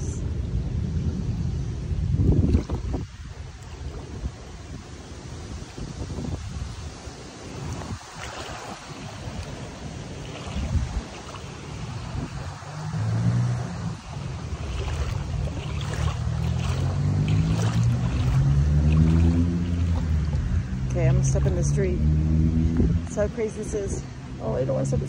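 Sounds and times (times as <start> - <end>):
wind on microphone: 0.0 - 25.0
boots splashing through water: 7.4 - 12.5, 14.0 - 22.5
vehicle engine hum: 10.7 - 25.0.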